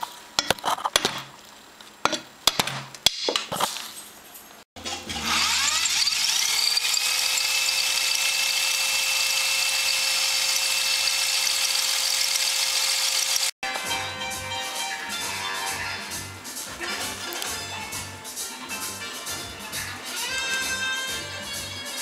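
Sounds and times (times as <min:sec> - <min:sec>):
rotary tool whining: 0:04.8 - 0:13.6.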